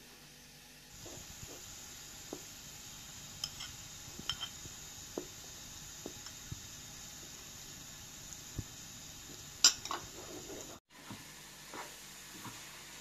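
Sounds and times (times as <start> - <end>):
wooden spatula scraping pot: 9.7 - 10.8.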